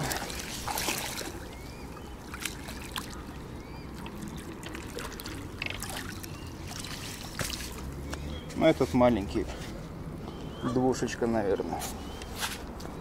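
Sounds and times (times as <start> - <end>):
water splashing and trickling: 0.0 - 9.5.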